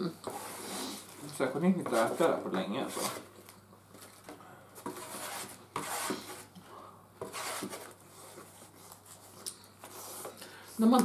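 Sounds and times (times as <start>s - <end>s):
forks scraping foam trays: 0.2s - 3.3s, 4.0s - 6.5s, 7.2s - 10.4s.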